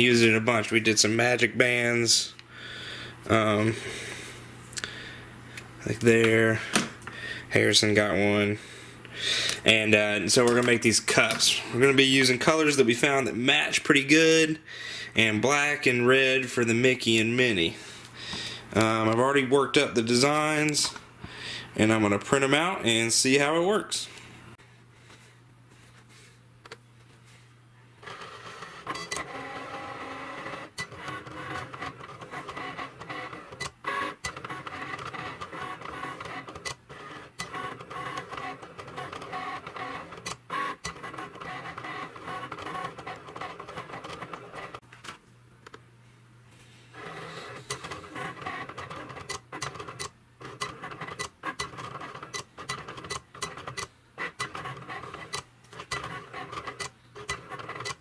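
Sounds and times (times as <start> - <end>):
cutting machine motors whirring: 28.0 - 44.8, 47.0 - 58.0.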